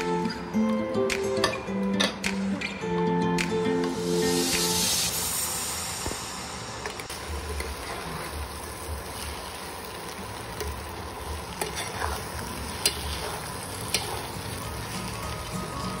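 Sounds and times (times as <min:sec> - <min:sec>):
noodles sizzling in frying pan: 0:03.9 - 0:16.0.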